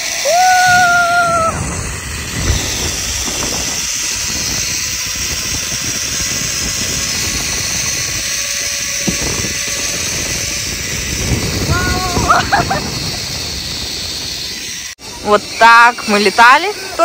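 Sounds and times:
wind over microphone: 0.2s - 16.1s.

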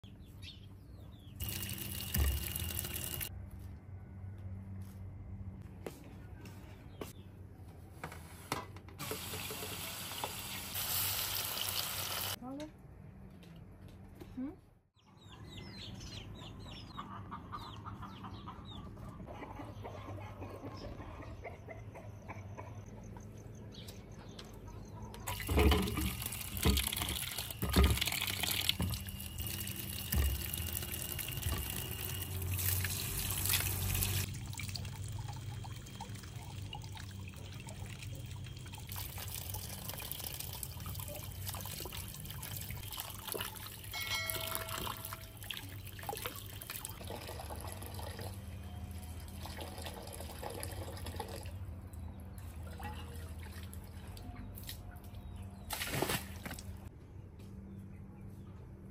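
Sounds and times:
tap water running into metal bowl: 1.4s - 3.3s, 25.3s - 37.9s.

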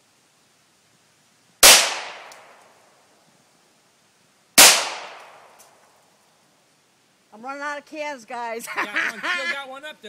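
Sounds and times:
gunshots: 1.6s - 2.3s, 4.6s - 5.4s.

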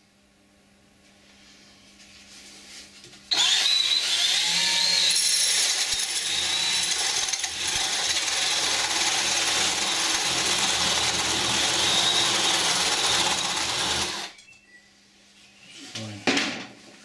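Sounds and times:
electric drill boring into wood: 3.3s - 14.3s.

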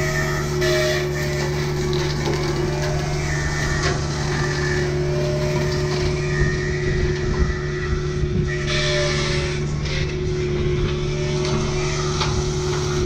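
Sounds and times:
excavator diesel engine running: 0.0s - 13.0s
hydraulic brush cutter whine: 0.0s - 13.0s.

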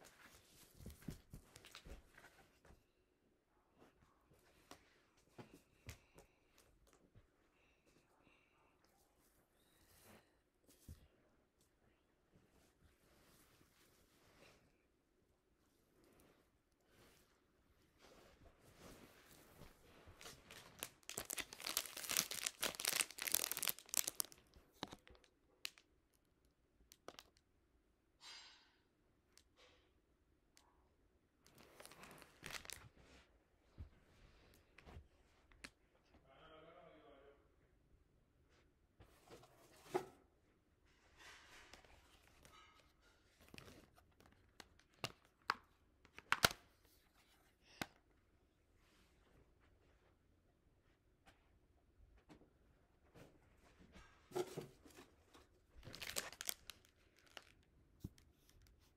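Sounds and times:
plastic bag crinkling: 20.5s - 25.8s, 31.6s - 32.9s, 55.8s - 57.7s.

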